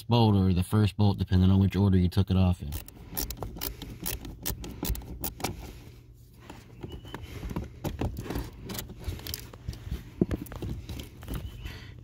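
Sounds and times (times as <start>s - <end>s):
screwdriver clicking and rattling: 2.7s - 5.7s, 7.1s - 9.6s.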